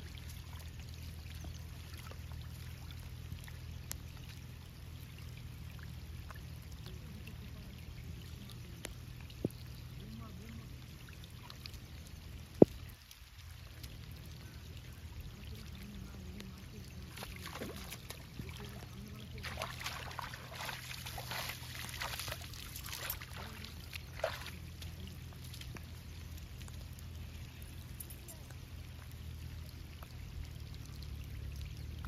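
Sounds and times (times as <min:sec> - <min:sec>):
hands splashing in shallow water: 0:17.0 - 0:25.9.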